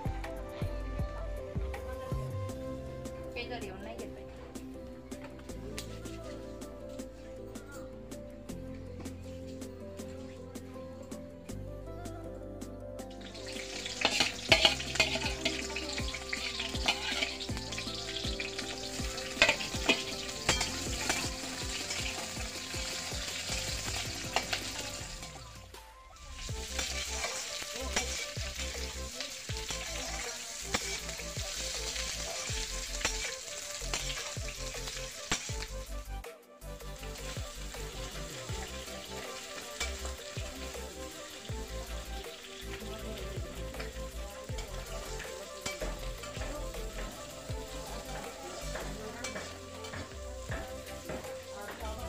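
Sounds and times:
food sizzling in oil: 13.1 - 52.0
metal spoon clicking and scraping pan: 13.9 - 22.4, 26.8 - 28.6, 33.0 - 34.3.

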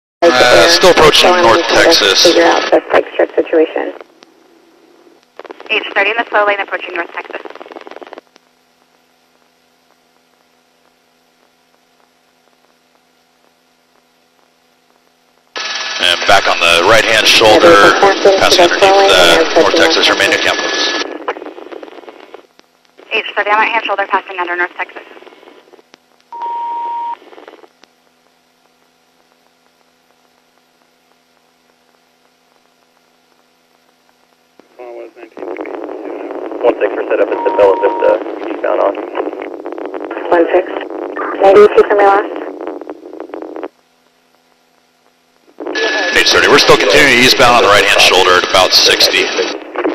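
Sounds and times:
electrical hum with static: 0.2 - 49.9
radio beep: 26.3 - 27.3, 35.3 - 42.7, 45.6 - 49.9.

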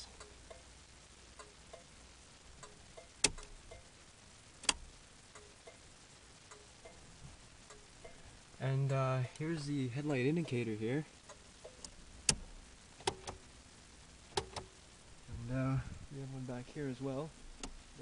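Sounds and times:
faint ticks inside car cabin: 0.0 - 2.0, 2.6 - 4.0, 4.6 - 7.0, 7.6 - 10.6, 11.2 - 13.4, 14.3 - 14.8, 17.5 - 17.9
sharp clicks: 2.6 - 3.9.

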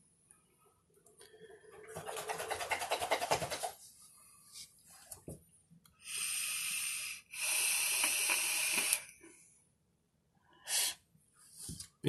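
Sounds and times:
vape hissing: 6.0 - 9.2.

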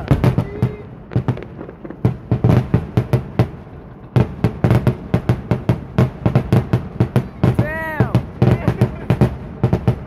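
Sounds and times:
fireworks bangs: 0.0 - 10.0.

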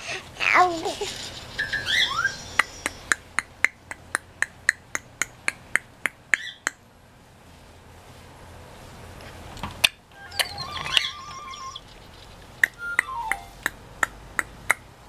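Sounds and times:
rising electronic toy tone: 10.2 - 11.9, 12.8 - 13.6.

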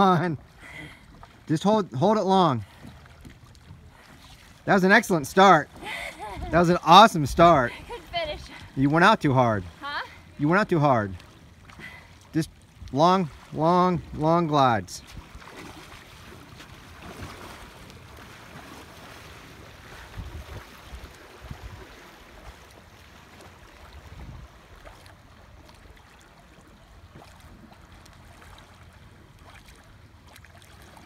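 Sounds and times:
rippling water: 0.0 - 31.0
wind gusting across microphone: 6.2 - 8.5, 19.9 - 22.0, 24.0 - 24.7.

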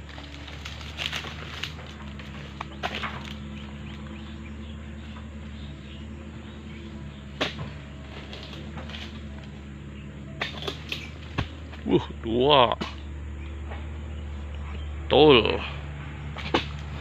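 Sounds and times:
chisel chopping palm stalks: 0.0 - 4.3, 6.9 - 9.6, 10.3 - 12.0, 12.6 - 13.2, 16.2 - 17.0
steady low hum: 0.0 - 17.0.

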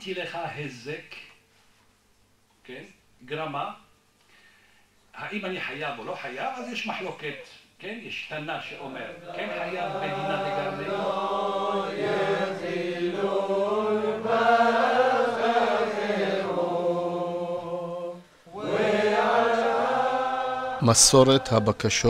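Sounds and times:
group of voices chanting: 9.1 - 21.7.

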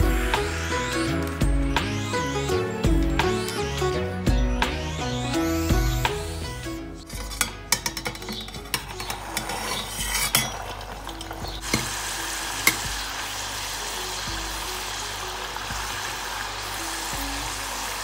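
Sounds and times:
spring rolls sizzling in oil: 8.9 - 18.0.

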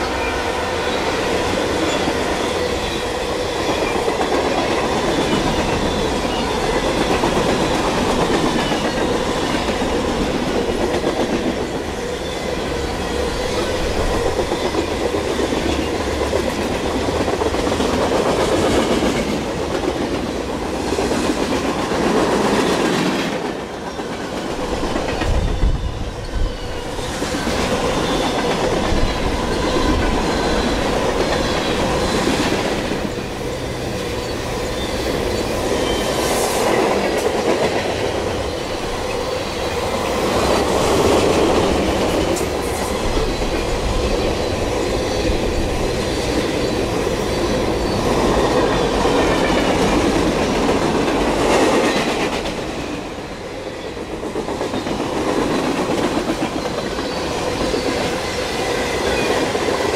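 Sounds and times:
clickety-clack over rail joints: 1.3 - 12.1, 12.7 - 34.3, 35.1 - 59.9
high wheel squeals: 45.8 - 48.2.

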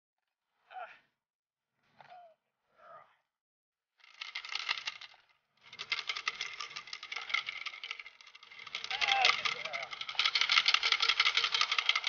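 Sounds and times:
rapid rattling clatter: 4.0 - 12.0.

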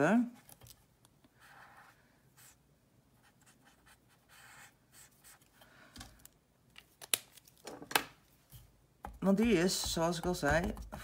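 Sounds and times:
marker pen scratching on paper: 1.3 - 2.6, 3.2 - 5.6, 9.1 - 11.0.

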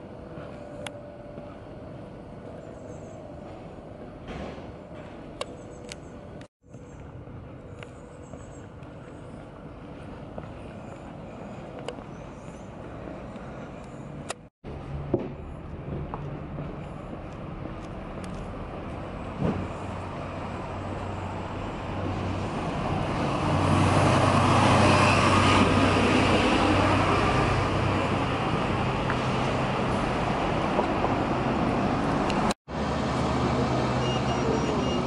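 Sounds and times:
street traffic: 0.0 - 35.0
vehicle engine passing by: 22.1 - 35.0.

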